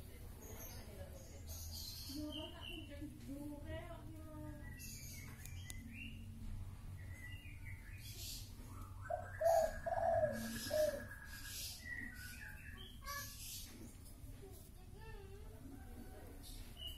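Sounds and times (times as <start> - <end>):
birds chirping: 0.0 - 14.1, 15.8 - 16.9
bird trill: 7.1 - 13.7
bird cooing calls: 8.8 - 12.2.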